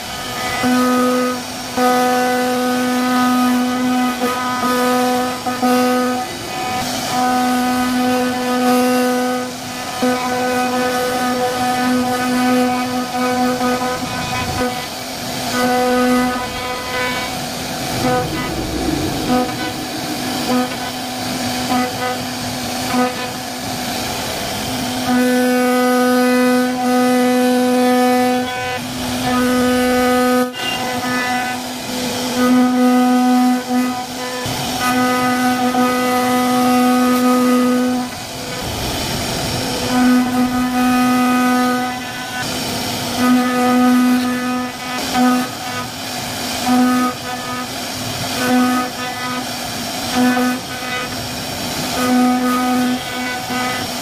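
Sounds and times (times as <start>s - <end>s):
wood router whining: 0.0s - 23.4s, 32.5s - 45.6s
wood cutting noise: 0.2s - 28.4s, 29.2s - 45.9s
router spindle whine: 14.0s - 22.3s.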